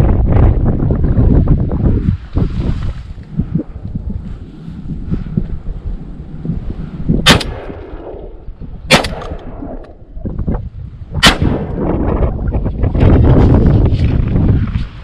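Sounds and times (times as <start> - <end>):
shotgun shots: 7.2 - 10.0, 11.2 - 12.0.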